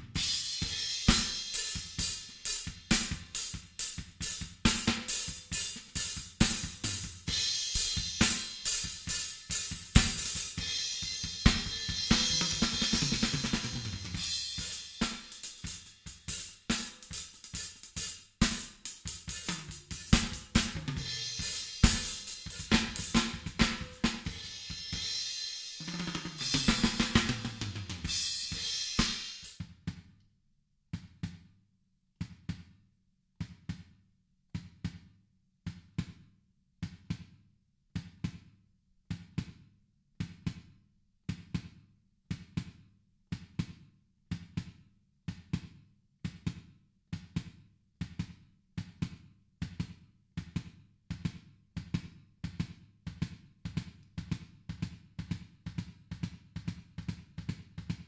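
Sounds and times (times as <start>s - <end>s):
sparse drum strokes: 0.0s - 30.0s
drum kit with cymbals: 0.0s - 30.2s, 30.9s - 31.6s, 32.2s - 32.8s, 33.4s - 37.4s, 38.0s - 39.6s, 40.2s - 58.0s.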